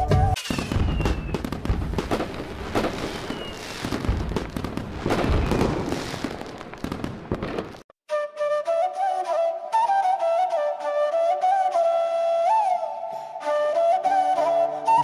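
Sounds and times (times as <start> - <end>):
flute music: 0.0 - 6.6, 8.1 - 15.0
fireworks bangs and crackles: 0.0 - 7.9
descending firework whistle: 0.0 - 9.1, 14.2 - 15.0.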